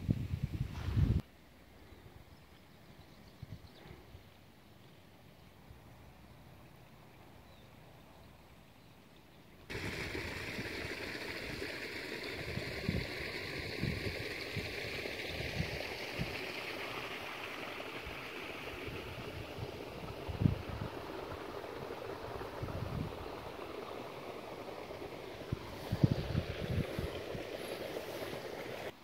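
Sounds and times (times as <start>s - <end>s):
low wind buffeting thumps: 0.0s - 1.2s, 9.7s - 28.9s
wind on microphone: 0.0s - 1.2s, 9.7s - 23.6s, 24.6s - 28.9s.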